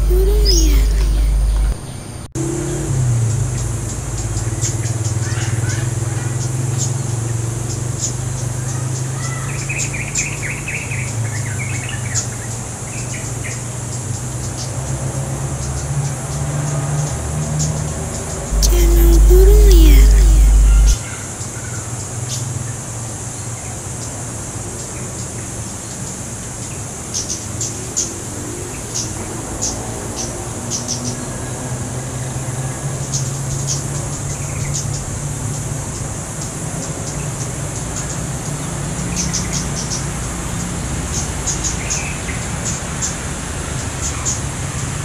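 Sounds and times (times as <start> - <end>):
steady low hum: 18.5 - 21.0.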